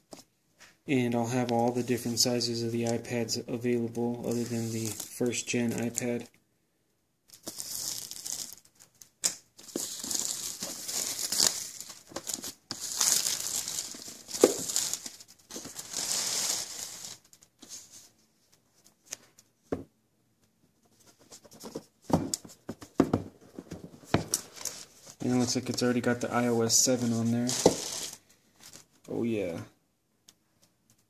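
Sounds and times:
plastic wrap crinkling: 7.3s - 17.9s, 24.0s - 28.9s.

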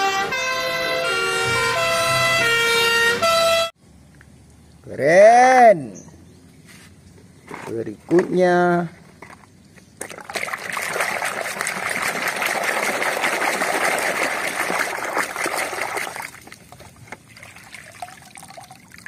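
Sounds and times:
splashing and scrubbing in water: 9.2s - 19.0s
water trickling: 10.0s - 19.0s.

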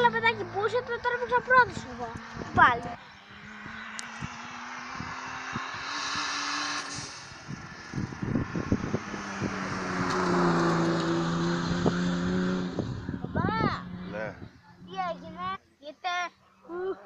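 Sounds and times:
race car engine passing: 0.0s - 15.6s.

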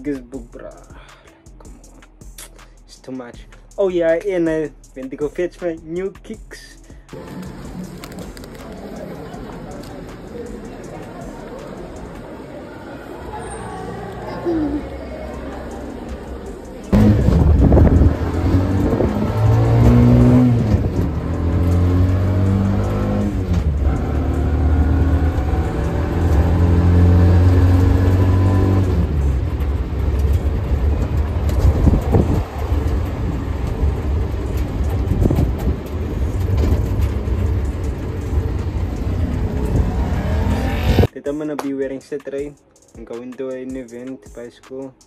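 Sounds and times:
vehicle engine revving: 13.1s - 41.1s.

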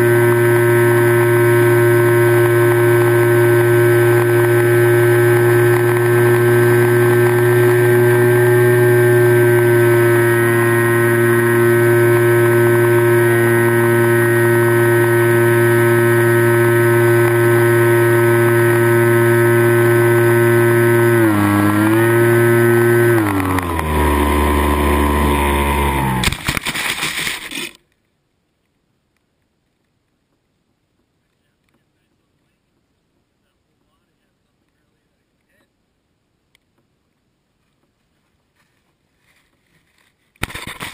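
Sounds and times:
model plane motor and propeller: 0.0s - 27.8s, 40.0s - 40.9s
plane crashing into grass: 26.1s - 27.8s, 40.4s - 40.9s.

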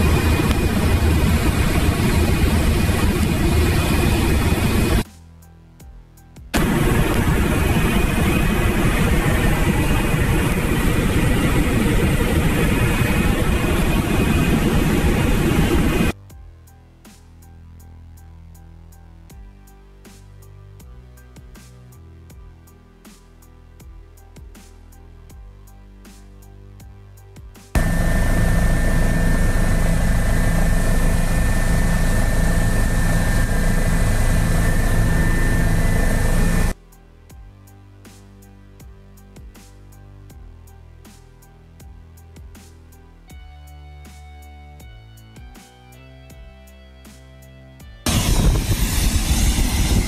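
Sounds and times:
aircraft cockpit engine noise: 0.0s - 5.0s, 6.6s - 16.2s, 27.8s - 36.8s, 48.1s - 50.0s.

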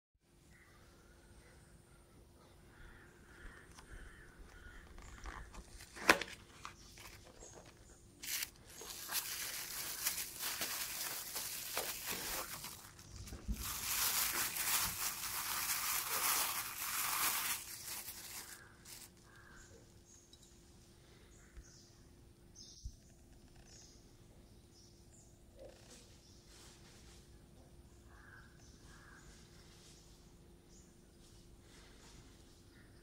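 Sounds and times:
plastic bag crinkling: 4.7s - 19.5s
cardboard box opened: 5.0s - 19.1s.

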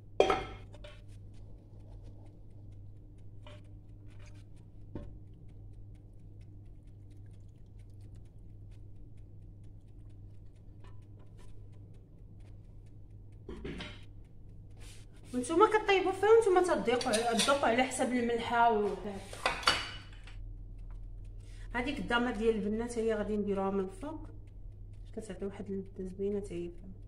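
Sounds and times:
steady low hum: 0.0s - 27.0s
cookware clicks: 16.8s - 17.8s.

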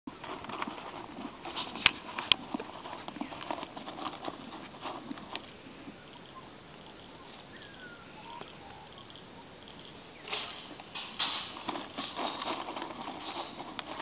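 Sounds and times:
horse crunching and chewing: 0.1s - 6.0s, 10.7s - 14.0s.

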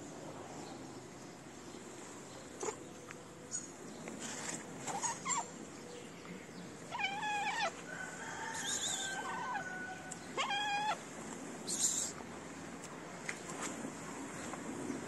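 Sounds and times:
cat meowing: 6.9s - 7.8s, 9.0s - 11.0s.

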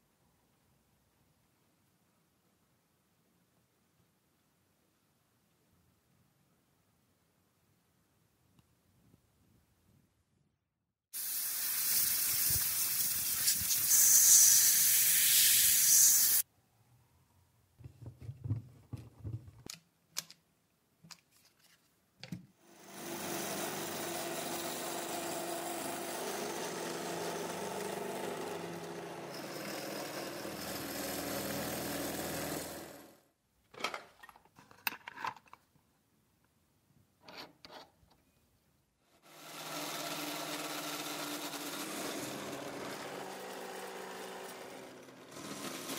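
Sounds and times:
air blow gun hissing: 11.2s - 16.4s
drill press running: 22.8s - 33.2s, 39.3s - 45.9s.

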